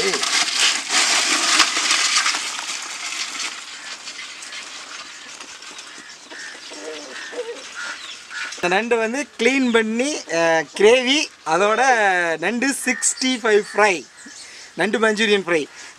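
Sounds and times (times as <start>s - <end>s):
crabs clattering in metal pot: 0.0s - 8.6s.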